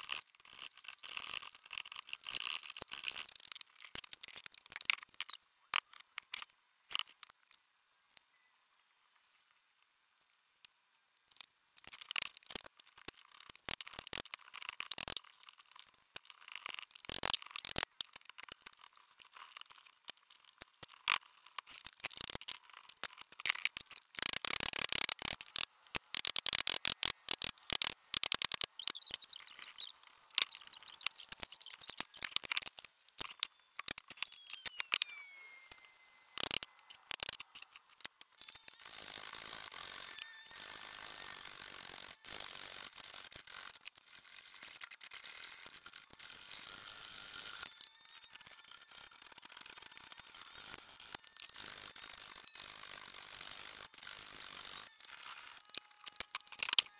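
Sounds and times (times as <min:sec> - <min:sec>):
short falling squeaks: 0:26.2 - 0:41.4.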